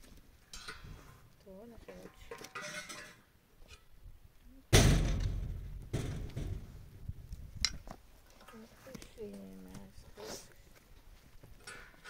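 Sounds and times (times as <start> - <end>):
loud sudden thud: 4.7 - 6.7.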